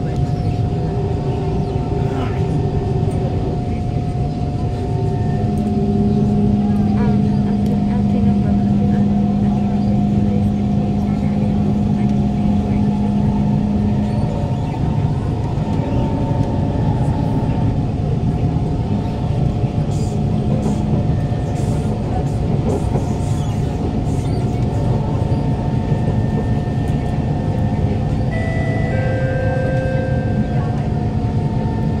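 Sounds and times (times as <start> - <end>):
traction motor tones: 0.0 - 21.6
wheel-on-rail rumble: 0.0 - 32.0.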